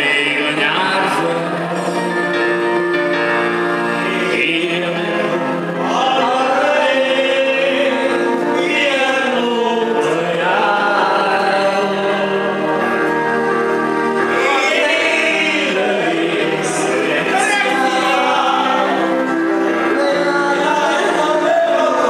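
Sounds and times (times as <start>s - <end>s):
electronic keyboard chords: 0.0s - 22.0s
person singing slow melody: 0.0s - 22.0s.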